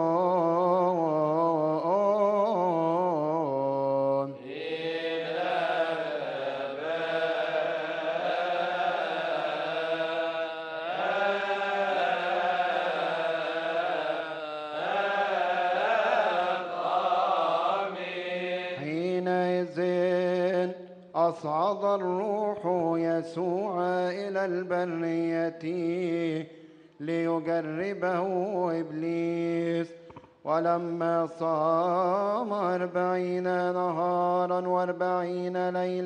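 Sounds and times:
melismatic liturgical chant: 0.0 - 36.0
man chanting reciting tone: 7.6 - 36.0.

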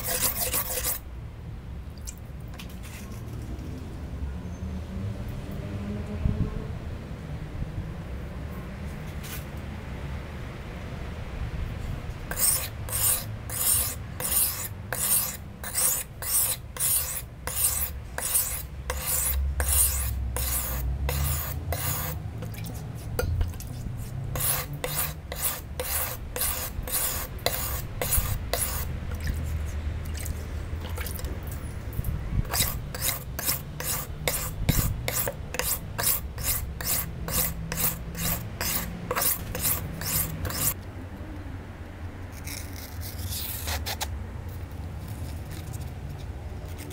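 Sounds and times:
knife scraping on sharpening stone: 0.0 - 1.0, 12.3 - 29.4, 32.5 - 40.8.

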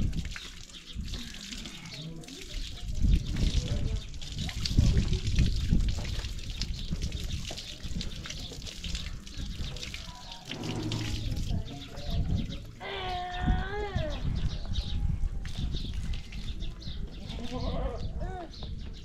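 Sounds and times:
water splashing on stone: 0.0 - 12.8
water spraying from a hose: 0.0 - 13.7.

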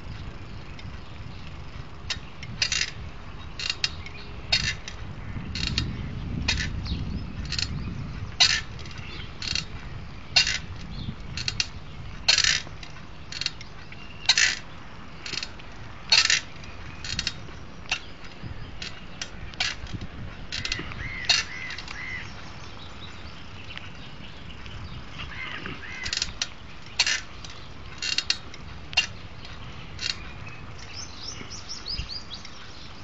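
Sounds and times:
footsteps on paved path: 0.0 - 33.0
bird chirps: 12.8 - 14.8, 20.9 - 28.0, 29.0 - 33.0.

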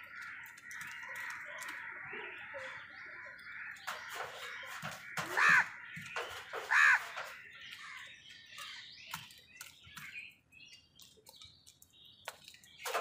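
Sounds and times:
crow cawing: 0.0 - 8.1
soft calls and chirps: 0.0 - 13.0.

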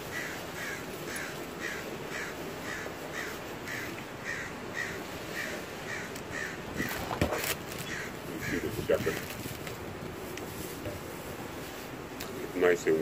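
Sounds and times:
bird calling: 0.0 - 9.5
wind noise on microphone: 5.9 - 12.2.

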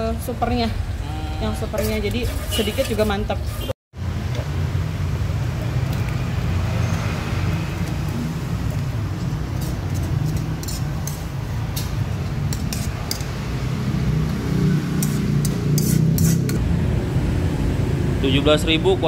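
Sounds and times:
metal spoon scraping a pan: 1.7 - 3.7, 8.7 - 13.4, 14.9 - 16.6.

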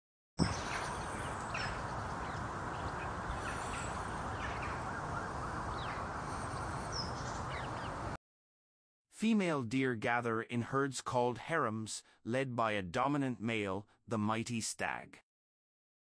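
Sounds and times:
outdoor background noise: 0.4 - 8.2.

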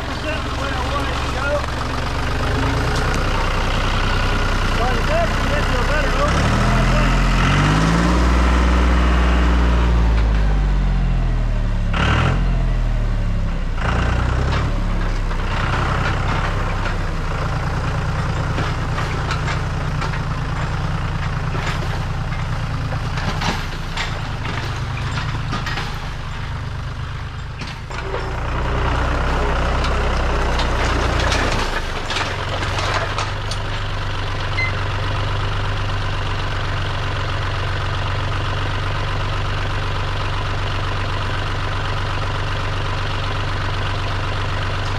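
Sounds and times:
tractor diesel engine running: 0.0 - 44.9
branches cracking and snapping: 0.4 - 3.7.

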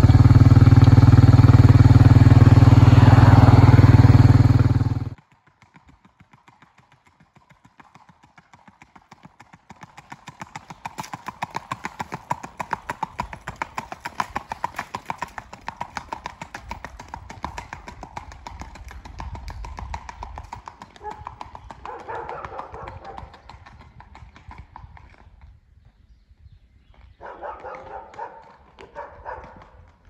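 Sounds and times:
horse hooves on pavement: 0.0 - 26.2, 26.8 - 30.0.

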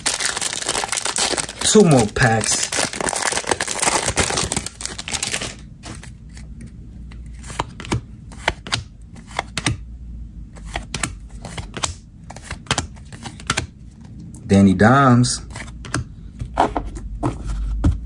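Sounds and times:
wrapper crinkling: 0.0 - 5.6.

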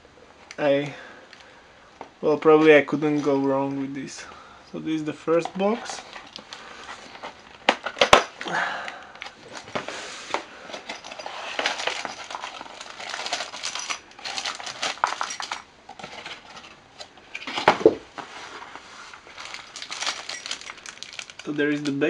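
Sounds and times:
rustling cardboard and plastic bags: 5.2 - 8.5, 9.1 - 22.0
small metal parts clinking: 10.7 - 17.6, 19.4 - 22.0.

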